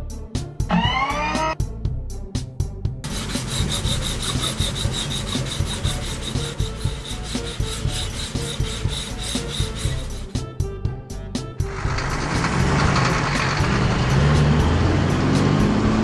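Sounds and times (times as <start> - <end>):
cloth rubbing on metal: 3.0 - 10.4.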